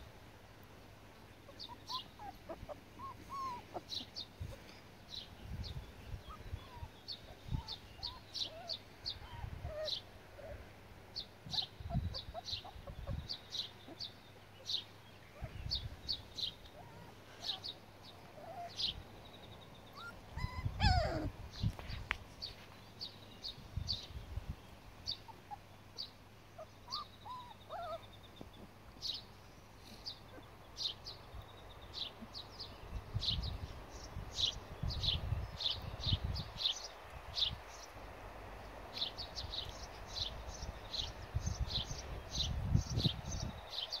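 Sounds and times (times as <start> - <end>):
small bird chirping: 1.4 - 10.5, 11.2 - 24.2, 25.1 - 38.0
puppy yelp: 1.5 - 4.1, 7.5 - 10.0, 11.5 - 13.2, 19.9 - 21.3, 26.6 - 28.0
puppies whimpering: 1.5 - 4.3, 6.1 - 10.6, 16.7 - 17.7, 18.4 - 18.9, 19.9 - 21.4, 26.6 - 28.1.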